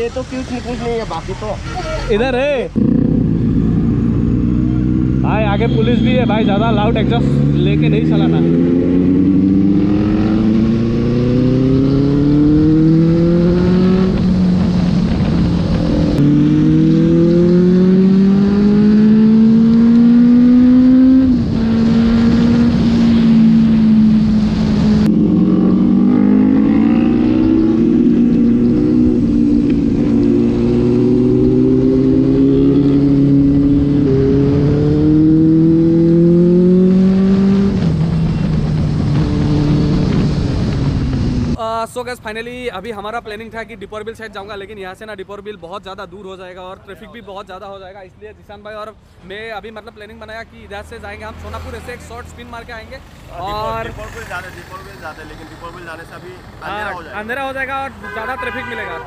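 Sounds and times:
motorcycle engine accelerating: 0:02.7 - 0:41.6.

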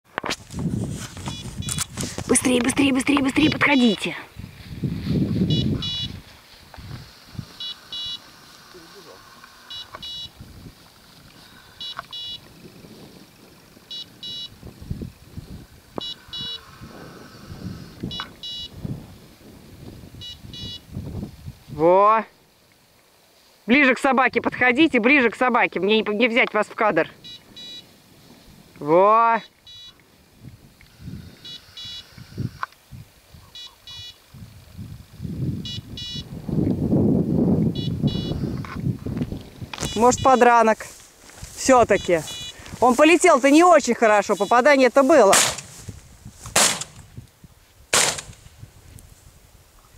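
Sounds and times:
rustling and thumps: 0:00.1 - 0:03.6, 0:45.2 - 0:47.2, 0:48.0 - 0:48.5
footsteps through dry grass: 0:00.1 - 0:13.9, 0:38.8 - 0:49.9
beeper collar beeps: 0:01.2 - 0:01.9, 0:05.4 - 0:06.2, 0:07.6 - 0:08.3, 0:09.6 - 0:10.4, 0:11.8 - 0:12.5, 0:13.9 - 0:14.6, 0:16.0 - 0:16.8, 0:18.1 - 0:18.8, 0:20.2 - 0:20.9, 0:27.2 - 0:27.9, 0:29.4 - 0:30.0, 0:31.4 - 0:32.2, 0:33.5 - 0:34.2, 0:35.6 - 0:36.3, 0:37.7 - 0:38.7, 0:39.8 - 0:40.7, 0:42.0 - 0:43.0, 0:44.1 - 0:44.9.

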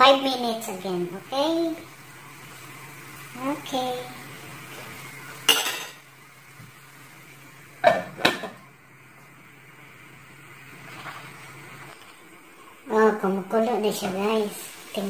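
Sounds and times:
glass lid clanking on pot: 0:05.5 - 0:06.0, 0:07.8 - 0:08.6.

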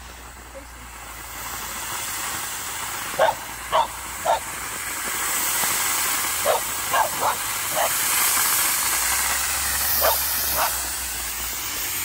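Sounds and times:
smoke bomb hissing: 0:00.0 - 0:12.0
dog barking: 0:03.2 - 0:04.5, 0:06.4 - 0:08.0, 0:10.0 - 0:10.8.

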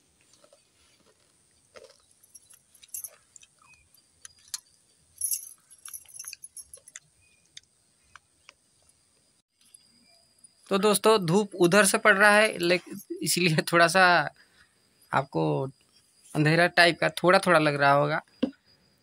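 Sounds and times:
bangles clinking: 0:01.8 - 0:07.4.

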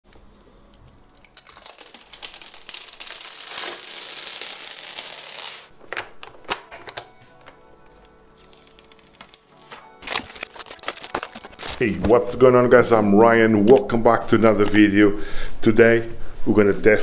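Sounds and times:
sharp clicks and crinkles: 0:00.1 - 0:11.9
plastic film being peeled off: 0:00.7 - 0:12.2.

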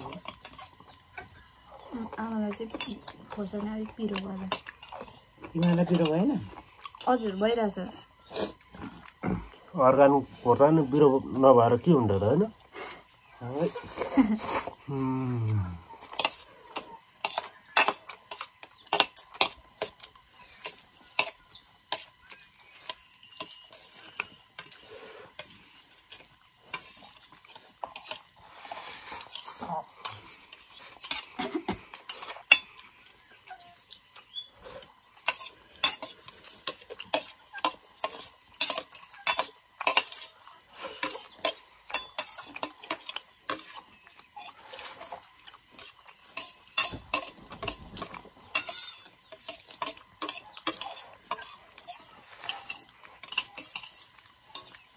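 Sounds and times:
cutlery scraping on a plate: 0:00.0 - 0:01.0, 0:04.5 - 0:06.2, 0:16.0 - 0:32.8, 0:34.6 - 0:54.9.

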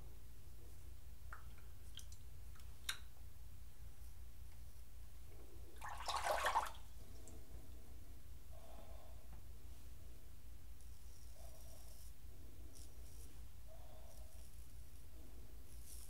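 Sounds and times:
steady low hum: 0:00.0 - 0:16.0
water splashing in a sink: 0:05.8 - 0:06.9.

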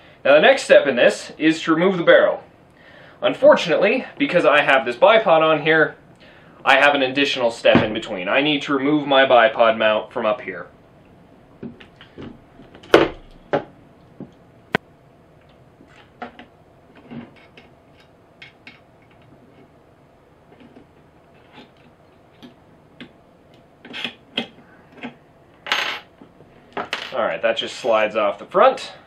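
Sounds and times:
small parts set down on wooden desk: 0:26.8 - 0:27.2.

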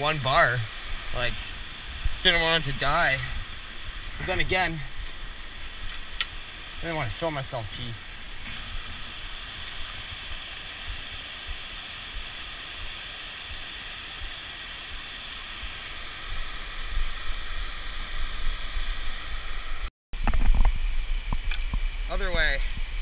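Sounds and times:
flowing river water: 0:00.0 - 0:23.0
wind buffeting microphone: 0:00.7 - 0:06.8.

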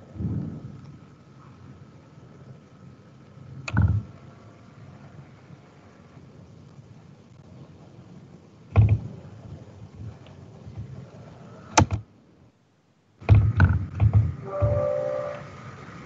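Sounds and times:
faint hiss: 0:00.0 - 0:16.0
dull thumps and knocks: 0:08.7 - 0:09.2, 0:13.2 - 0:14.8.

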